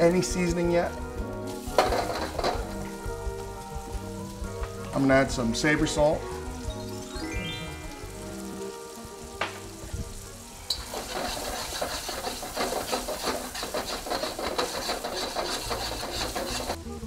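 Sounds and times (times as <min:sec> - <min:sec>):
food sizzling in a wok: 0:00.0 - 0:17.0
metal spoon scraping wok: 0:01.6 - 0:02.8, 0:10.7 - 0:16.8.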